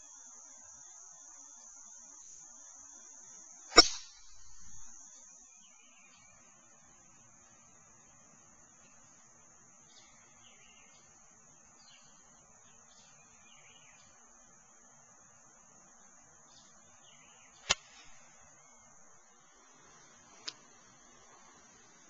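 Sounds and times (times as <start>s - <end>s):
faint chirps: 0.0s - 22.0s
high insect drone: 0.0s - 22.0s
golf club striking ball: 3.7s - 4.2s, 17.7s - 18.2s.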